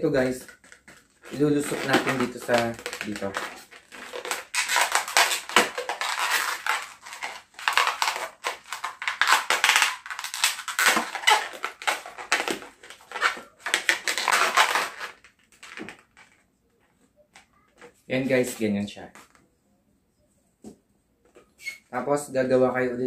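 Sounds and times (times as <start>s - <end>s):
balloon squeaking and rubbing: 0.2s - 16.4s, 21.4s - 22.0s.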